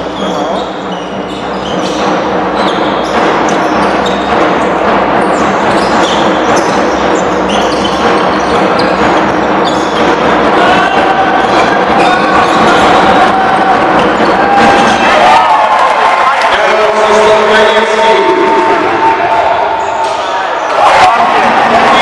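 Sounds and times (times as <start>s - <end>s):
sneakers squeaking: 0.0s - 15.0s, 19.7s - 20.8s
crowd hum: 0.0s - 22.0s.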